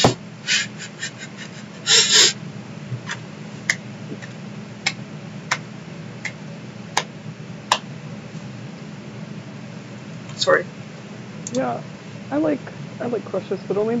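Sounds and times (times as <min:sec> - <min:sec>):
people laughing: 0:00.5 - 0:02.3.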